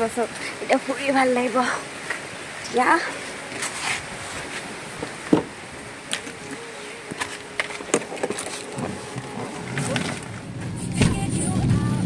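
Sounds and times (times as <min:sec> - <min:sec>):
steady rushing outdoor noise: 0:00.0 - 0:12.0
soft knocks: 0:05.0 - 0:05.5.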